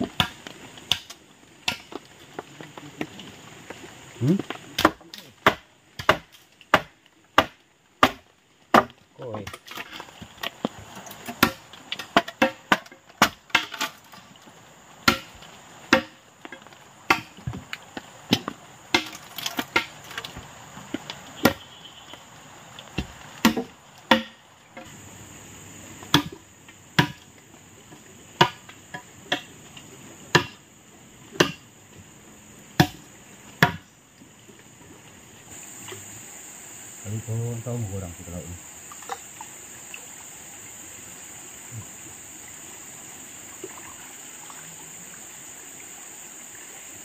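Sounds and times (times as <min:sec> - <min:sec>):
blade chopping palm trunk: 0:00.0 - 0:02.0, 0:04.8 - 0:09.9, 0:11.2 - 0:13.9, 0:15.0 - 0:16.2, 0:17.1 - 0:17.6, 0:18.3 - 0:20.3, 0:21.4 - 0:21.6, 0:23.0 - 0:24.4, 0:26.1 - 0:26.4, 0:27.0 - 0:27.2, 0:28.4 - 0:28.7, 0:30.3 - 0:30.6, 0:31.4 - 0:31.6, 0:32.8 - 0:33.0, 0:33.6 - 0:33.8
insects droning: 0:00.0 - 0:47.0.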